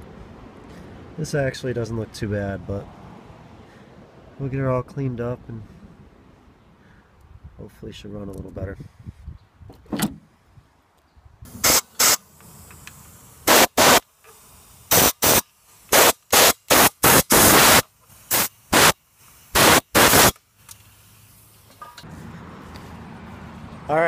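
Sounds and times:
compressed air blow gun hissing: 11.5s - 21.8s.

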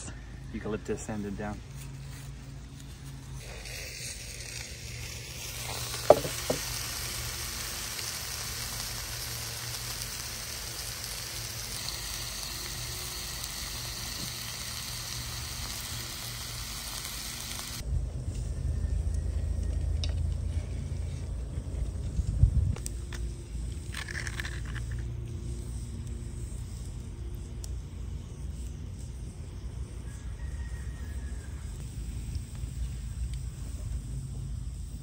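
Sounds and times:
fish sizzling in a skillet: 3.4s - 17.8s.

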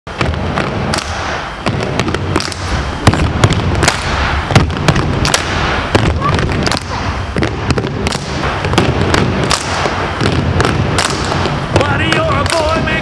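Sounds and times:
feet stamping on wooden floor: 1.6s - 9.6s.

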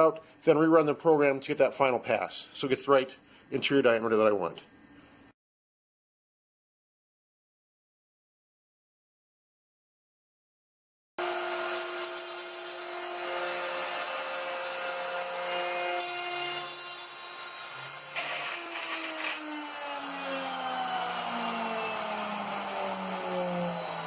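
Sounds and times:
cnc router spindle whir: 19.4s - 24.0s.

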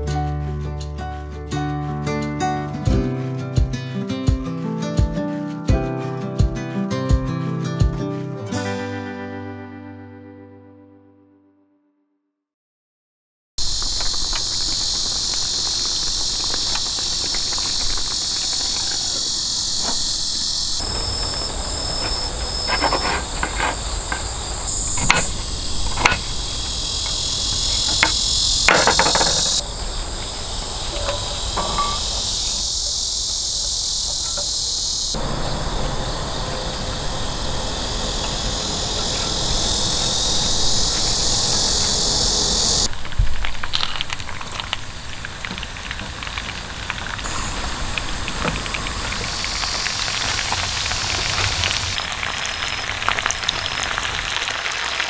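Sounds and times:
insects chorus shrilling: 13.6s - 55.0s.

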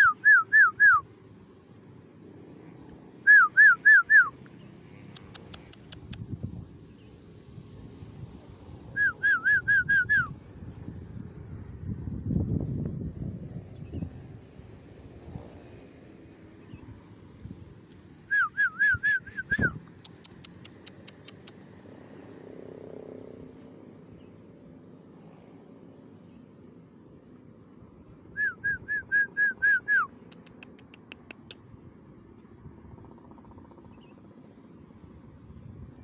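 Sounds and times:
whistled bird call: 0.0s - 1.1s, 3.2s - 4.4s, 8.9s - 10.4s, 18.3s - 19.8s, 27.6s - 30.6s
sharp clicks: 5.1s - 6.3s, 19.8s - 21.6s, 30.1s - 31.7s.

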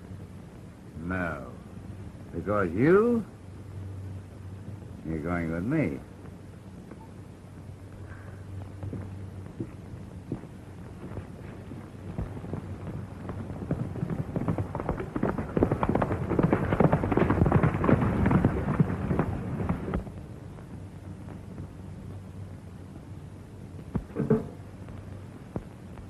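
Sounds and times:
horse hooves galloping: 8.1s - 21.8s.

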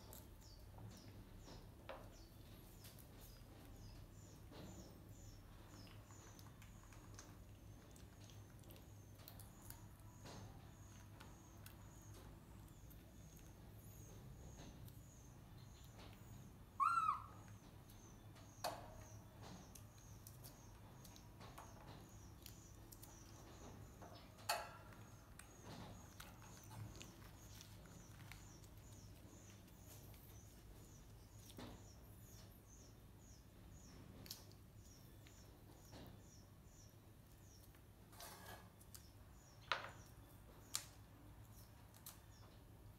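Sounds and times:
faint high chirping: 0.0s - 37.8s
monkey squealing: 16.8s - 17.4s
seeds cracking and clicking: 24.9s - 30.3s, 34.2s - 34.6s, 40.6s - 42.4s.

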